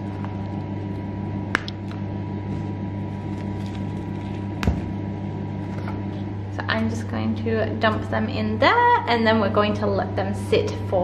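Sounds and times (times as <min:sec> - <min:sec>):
low electrical hum: 0:00.0 - 0:11.0
tea bags crinkling: 0:03.1 - 0:04.6.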